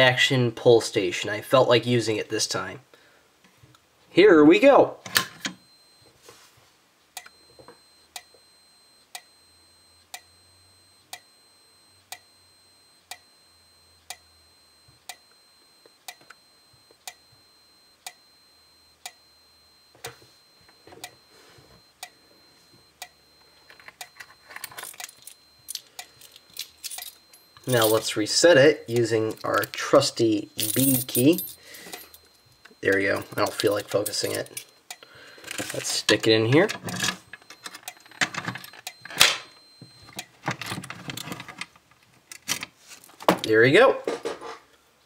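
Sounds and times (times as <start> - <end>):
faint high whine: 5.4 - 36.7
strobe ticking: 7.2 - 35.4, 38.7 - 40.4.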